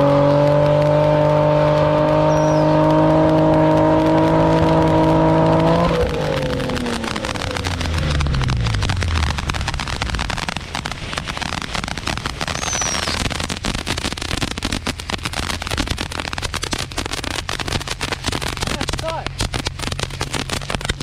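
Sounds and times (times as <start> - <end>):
car engine humming low: 0.0 - 21.0
fireworks crackling and popping: 0.0 - 21.0
whistling firework: 0.1 - 21.0.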